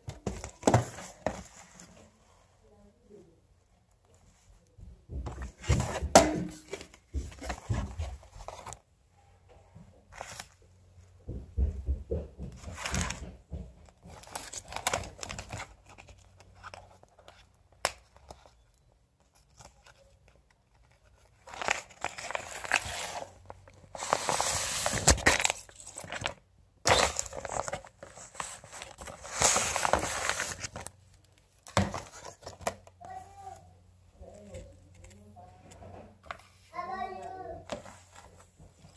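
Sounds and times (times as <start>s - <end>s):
plastic and card packages crinkling: 13.9s - 33.0s.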